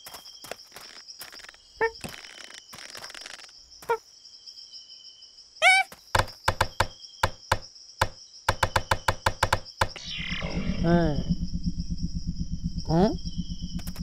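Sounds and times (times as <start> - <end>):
jungle insects droning: 0.0 - 14.0
cartoon squeal: 5.6 - 5.9
sharp knocks: 6.1 - 10.0.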